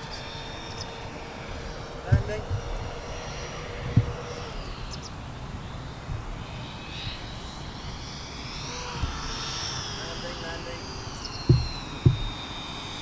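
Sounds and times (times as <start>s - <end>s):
electric ducted fans whining: 0.0s - 13.0s
low thump: 2.1s - 3.0s, 3.8s - 4.3s, 11.4s - 12.5s.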